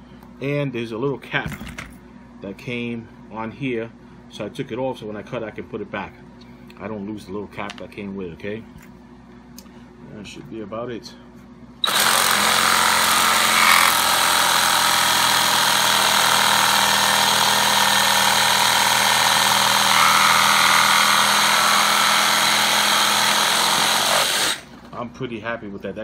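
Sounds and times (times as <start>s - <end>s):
reciprocating saw cutting: 11.8s - 24.8s.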